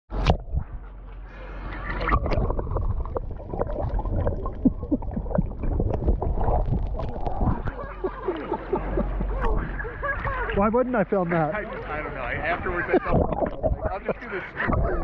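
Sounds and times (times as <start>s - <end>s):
muffled underwater rumble: 0.1s - 10.6s, 11.7s - 15.0s
underwater gurgles and bubbles: 0.1s - 15.0s.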